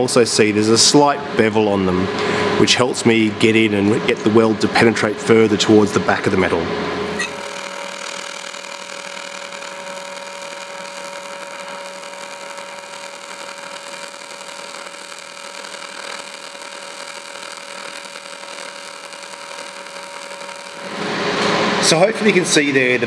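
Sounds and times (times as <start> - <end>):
welding arc buzzing: 5.4 - 22.8.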